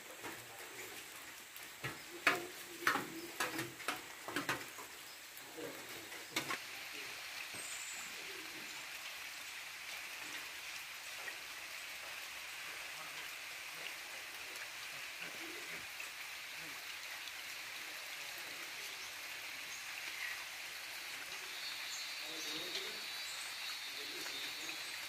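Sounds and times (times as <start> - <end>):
steady high-pitched hiss: 0.0 - 25.0
clicks and rustles: 1.7 - 5.0.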